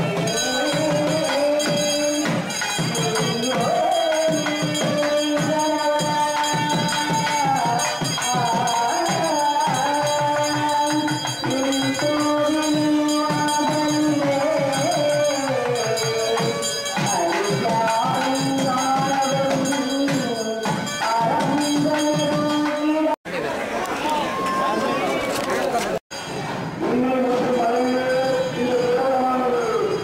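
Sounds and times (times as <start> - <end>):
fast steady drum beat: 0.0 - 22.7.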